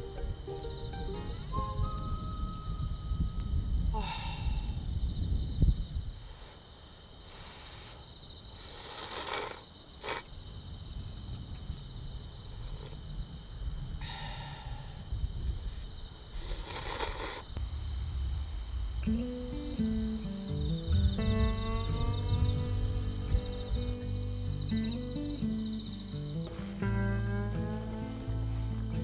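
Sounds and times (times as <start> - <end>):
music: 0.0 - 3.7, 19.0 - 29.0
night insects trilling: 0.0 - 29.0.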